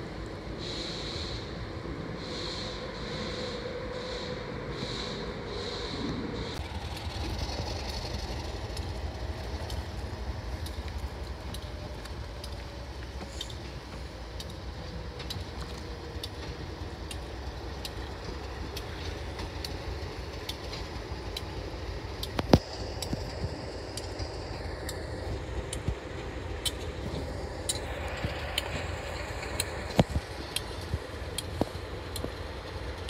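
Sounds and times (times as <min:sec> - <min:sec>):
diesel locomotive rumbling: 0:00.0 - 0:33.0.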